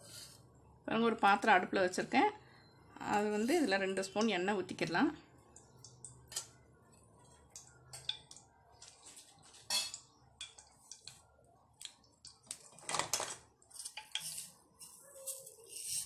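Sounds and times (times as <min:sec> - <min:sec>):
oil crackling and popping: 0:05.5 - 0:15.6.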